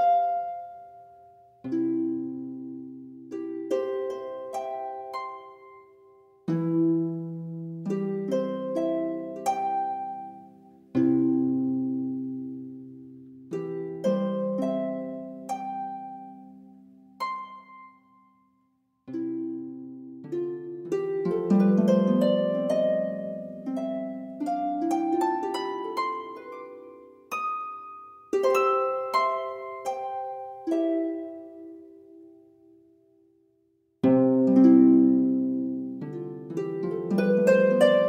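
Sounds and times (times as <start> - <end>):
harp notes plucked: 19.1 - 32.4.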